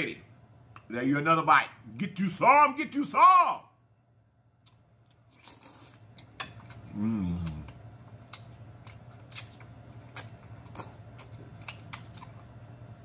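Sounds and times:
man slurping and chewing noodles: 5.3s - 12.5s
man humming mmm: 6.9s - 7.8s.

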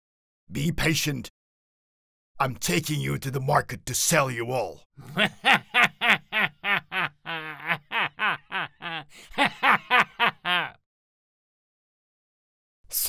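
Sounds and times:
cartoon man chuckling: 5.0s - 10.8s.

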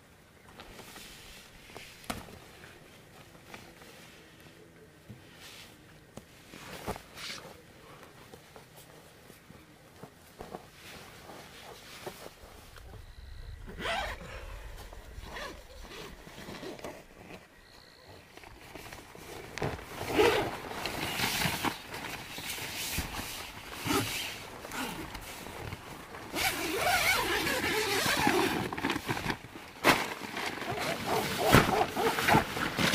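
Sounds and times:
tent zipper rasping: 11.0s - 17.5s, 18.6s - 29.4s, 30.4s - 32.9s
tent rustling and knocks: 18.4s - 32.9s.

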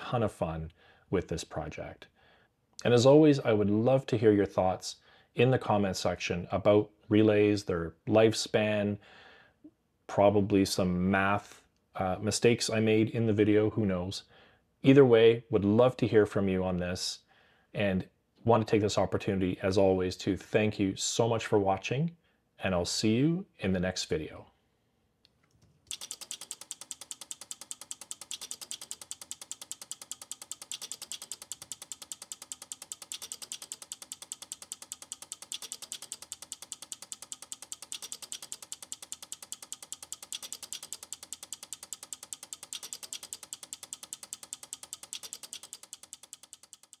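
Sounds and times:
relays clicking rapidly: 25.9s - 47.0s.

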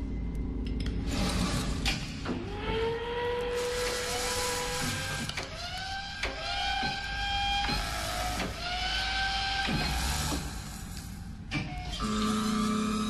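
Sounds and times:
pitched motor-like whines: 11.9s - 13.0s.

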